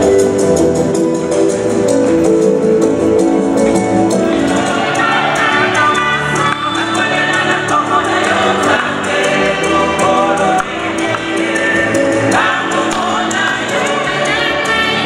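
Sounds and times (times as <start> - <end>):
choir singing a hymn: 4.2 - 15.0.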